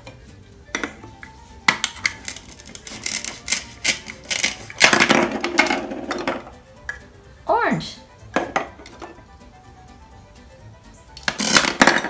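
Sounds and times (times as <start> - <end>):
velcro rasping apart: 2.0 - 4.9, 11.2 - 11.8.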